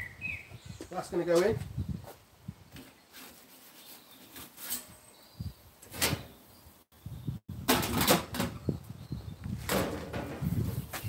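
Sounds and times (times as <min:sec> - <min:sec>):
pizza peel scraping and knocking: 0:03.0 - 0:05.0.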